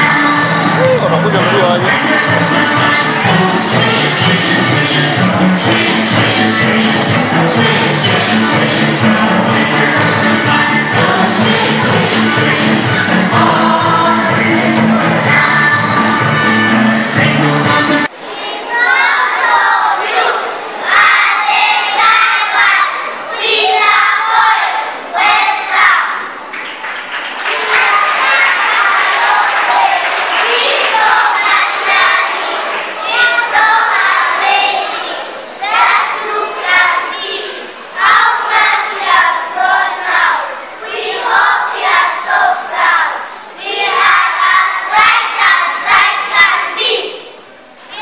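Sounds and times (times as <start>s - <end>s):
children chanting in unison: 18.2s - 26.3s, 27.6s - 48.0s.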